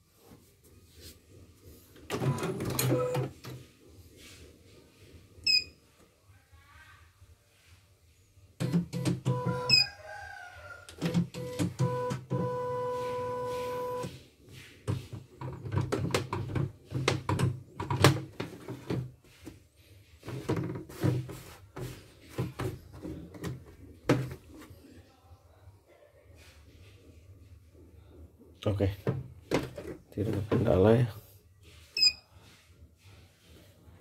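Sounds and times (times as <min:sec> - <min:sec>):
embroidery machine beeping: 0:08.6 - 0:09.9, 0:11.0 - 0:14.1.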